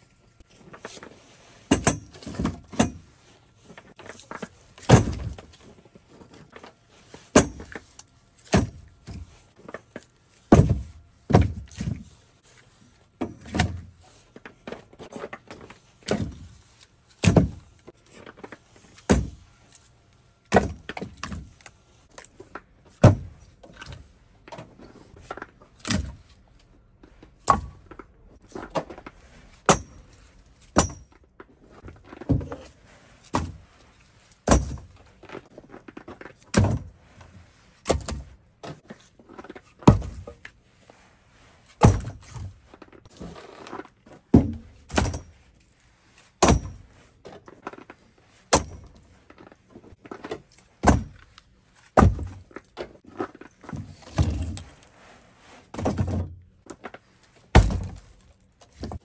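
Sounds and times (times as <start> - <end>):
logs knocking onto pile: 4.3 - 5.6, 10.5 - 12.0, 17.2 - 17.6, 23.0 - 24.0, 34.4 - 34.9, 41.8 - 42.5, 46.4 - 46.8, 50.8 - 51.2, 52.0 - 52.5, 57.5 - 58.1.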